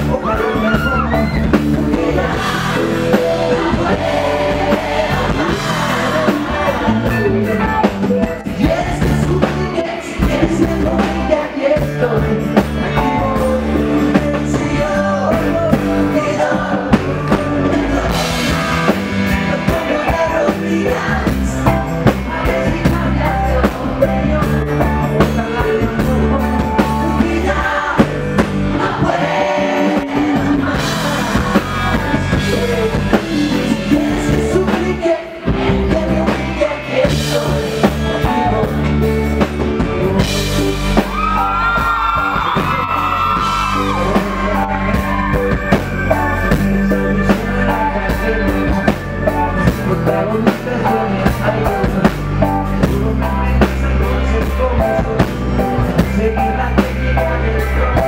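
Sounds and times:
live pop rock band: 0.0 - 58.0
man singing into microphone: 0.0 - 58.0.

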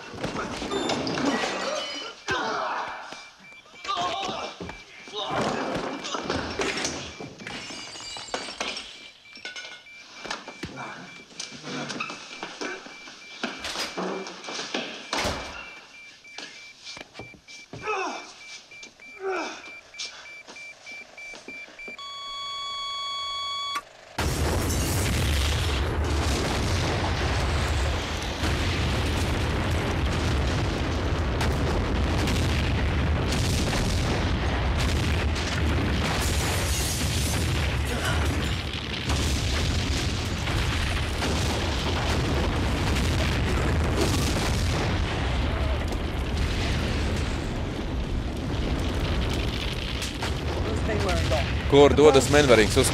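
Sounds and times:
fire crackling: 23.8 - 52.9
explosion rumble: 24.2 - 52.9.

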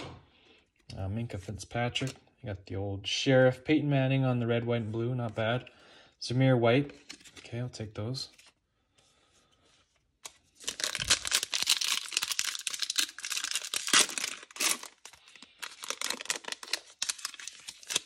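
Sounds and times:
foil wrapper tearing and crinkling: 10.6 - 18.0.

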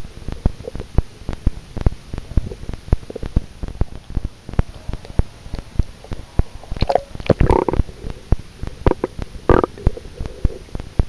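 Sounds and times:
gurgling bubbles: 6.1 - 10.8.

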